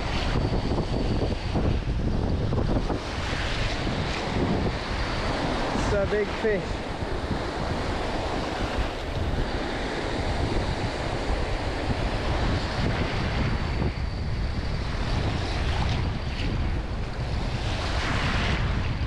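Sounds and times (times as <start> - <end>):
wind buffeting microphone: 0.0 - 19.0
small waves breaking on shore: 2.9 - 13.6.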